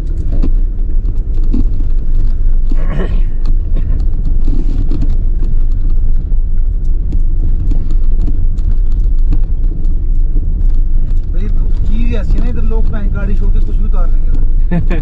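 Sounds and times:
car cabin low rumble: 0:00.0 - 0:15.0.

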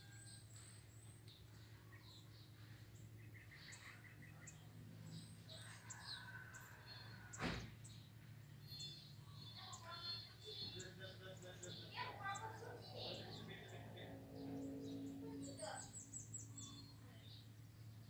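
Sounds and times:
birds chirping: 0:00.0 - 0:18.0
steady low hum: 0:07.8 - 0:18.0.

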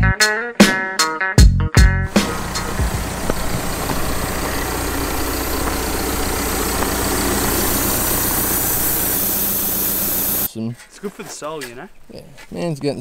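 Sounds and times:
diesel engine idling: 0:02.1 - 0:10.5.

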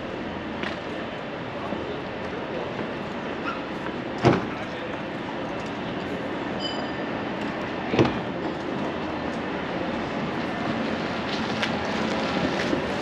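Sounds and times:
city street noise: 0:00.0 - 0:13.0
short high ring: 0:06.6 - 0:07.1.

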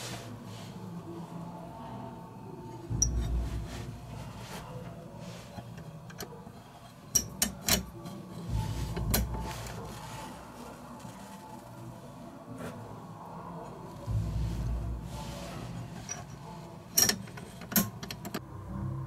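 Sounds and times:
metal latch clicking: 0:07.2 - 0:08.0, 0:16.0 - 0:18.4.

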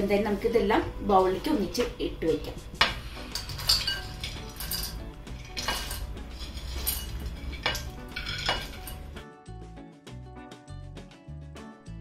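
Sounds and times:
soft background music: 0:00.0 - 0:12.0
spoon scraping on plate: 0:02.8 - 0:09.2.

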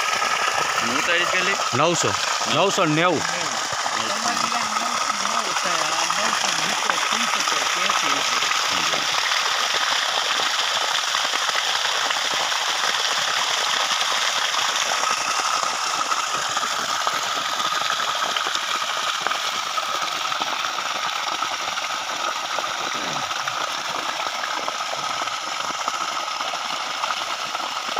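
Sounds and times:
water gushing and splashing on ground: 0:00.0 - 0:27.9.

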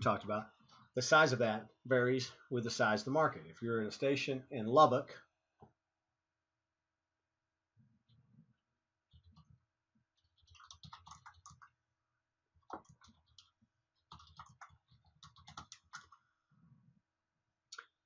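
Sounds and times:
typing on computer keyboard: 0:09.1 - 0:09.6, 0:10.2 - 0:11.8, 0:12.6 - 0:16.2.

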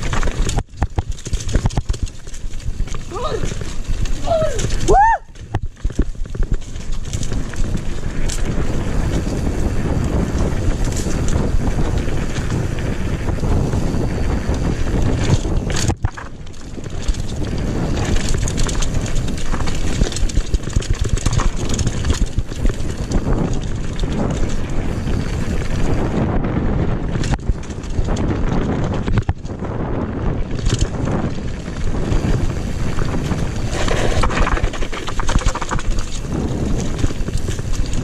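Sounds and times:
bike rattling clicks: 0:00.0 - 0:38.0
tyres rumbling on dirt: 0:00.0 - 0:38.0
wind buffeting microphone: 0:00.0 - 0:38.0.

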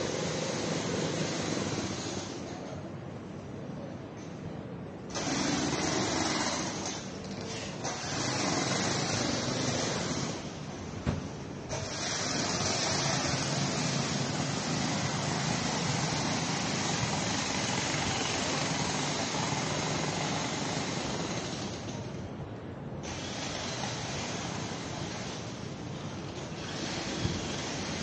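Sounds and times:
hiss: 0:00.0 - 0:02.6, 0:11.7 - 0:22.0, 0:23.0 - 0:25.7, 0:26.6 - 0:28.0
rushing street ambience: 0:00.0 - 0:28.0.

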